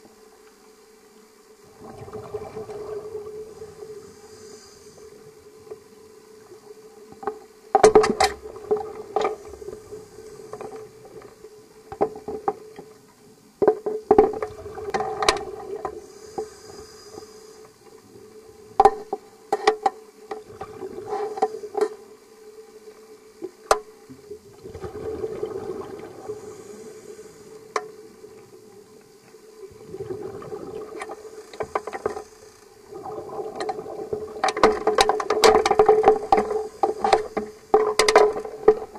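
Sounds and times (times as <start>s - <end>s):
steady underwater hum: 0.0s - 38.9s
regulator bubbles rushing: 1.7s - 3.9s, 24.4s - 26.4s, 29.7s - 31.1s
sharp underwater clicks and knocks: 7.1s - 9.7s, 10.3s - 12.9s, 13.6s - 17.3s, 18.7s - 22.0s, 23.4s - 24.0s, 30.9s - 32.7s, 33.5s - 38.9s.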